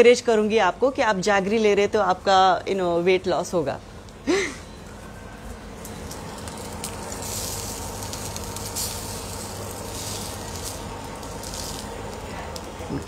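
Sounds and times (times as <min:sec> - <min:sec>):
steady low hum: 0:00.0 - 0:13.0
food sizzling in a frying pan: 0:05.9 - 0:13.0.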